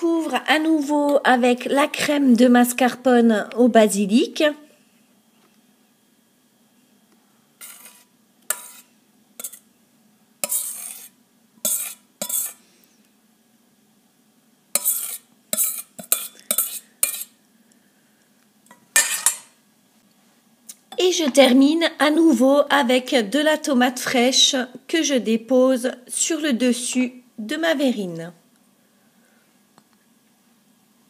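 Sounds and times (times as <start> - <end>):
spoon scraping cream from bowl: 7.6 - 9.7, 10.4 - 12.6, 14.8 - 17.4.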